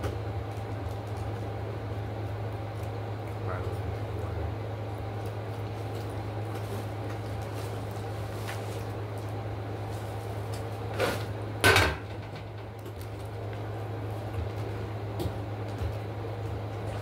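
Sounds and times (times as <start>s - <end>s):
steady low hum: 0.0s - 17.0s
tray set down with clatter: 11.0s - 12.5s.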